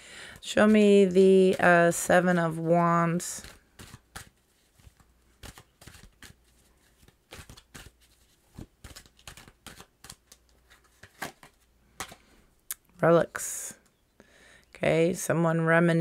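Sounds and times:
cards being shuffled: 0.3 - 12.3.

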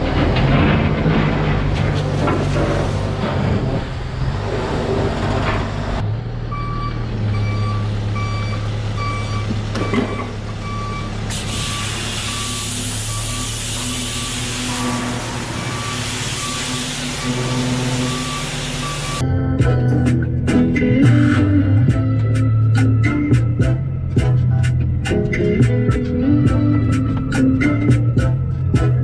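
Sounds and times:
diesel engine running: 0.0 - 19.2
reversing alarm beeping: 6.5 - 19.2
hiss: 11.3 - 14.7.

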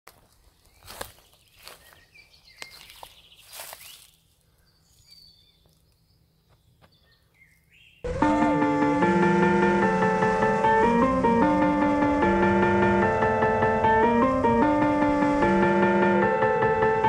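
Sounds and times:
footsteps in dry grass: 0.1 - 7.8
faint bird chirps: 0.6 - 8.1
keyboard music: 8.1 - 17.0.

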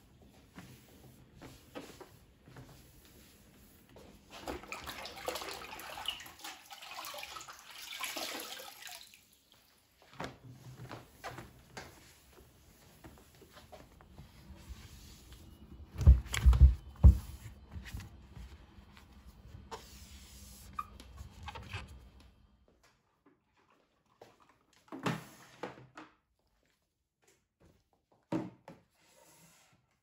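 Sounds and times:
cloth wiping a surface: 0.1 - 4.5, 10.6 - 15.6, 17.0 - 21.0.

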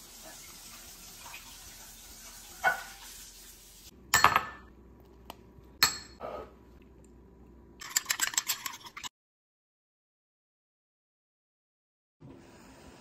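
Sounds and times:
dishes clattering: 4.2 - 4.7
spoon clinking against ceramic bowl: 5.8 - 6.2.

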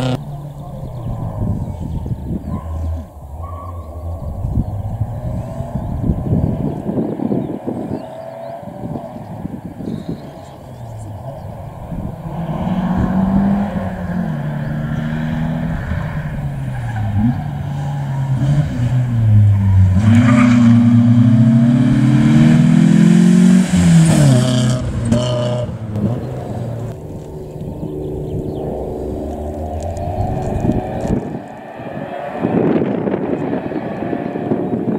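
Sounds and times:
rally car engine revving: 0.0 - 34.9
exhaust cracks: 23.5 - 34.9.

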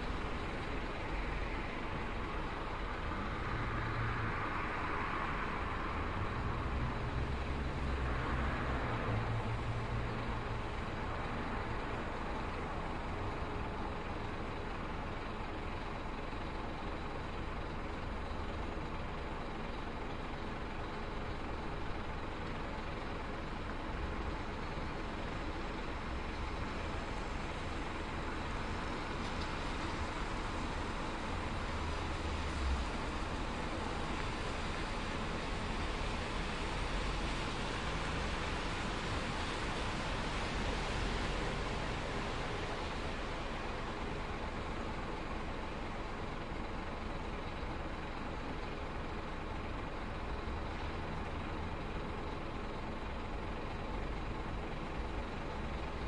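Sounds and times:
bus and traffic engine noise: 0.0 - 56.0
low engine rumble: 0.0 - 56.0.

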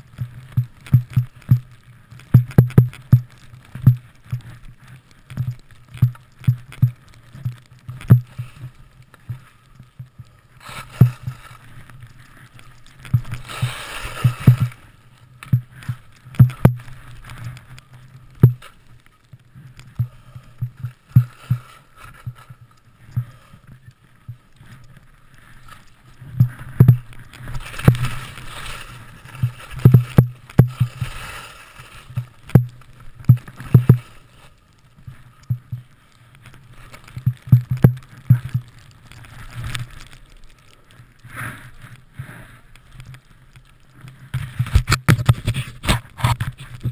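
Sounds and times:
knocks and thuds of skiing: 0.0 - 23.6, 24.2 - 46.9
skis hissing through snow: 10.4 - 15.1, 25.3 - 30.0, 30.7 - 32.4, 41.2 - 42.7.

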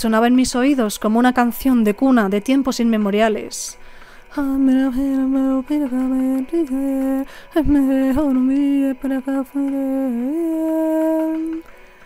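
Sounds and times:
woman chanting prayer: 4.3 - 11.6.

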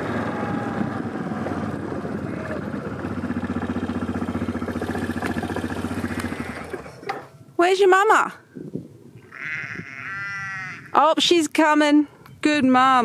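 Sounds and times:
quad bike engine running: 0.0 - 7.4.

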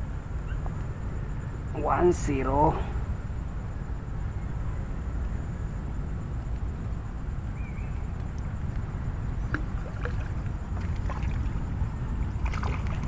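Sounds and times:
wind buffeting microphone: 0.0 - 13.0
faint clicks: 8.1 - 8.9.

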